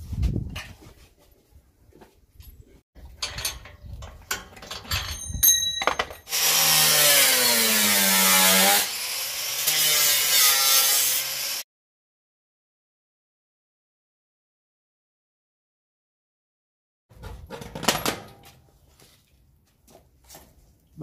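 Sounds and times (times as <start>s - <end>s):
angle grinder grinding steel: 6.2s - 11.6s.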